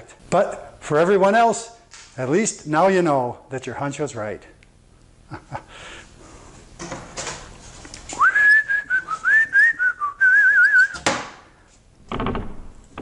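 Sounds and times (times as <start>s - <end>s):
person whistling a tune: 8.2s - 11.0s.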